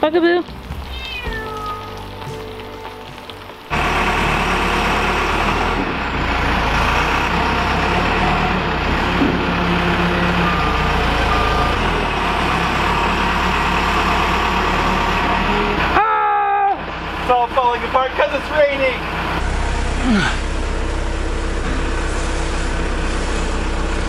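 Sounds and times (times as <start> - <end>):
diesel engine running: 1.9 - 24.0.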